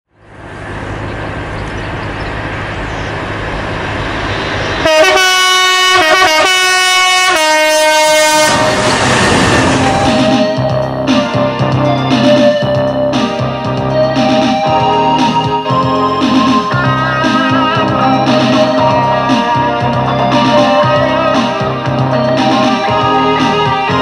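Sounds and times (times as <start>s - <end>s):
diesel locomotive engine rumbling: 0.1s - 24.0s
train wagons rumbling: 0.2s - 23.8s
locomotive horn blasts: 4.8s - 10.4s.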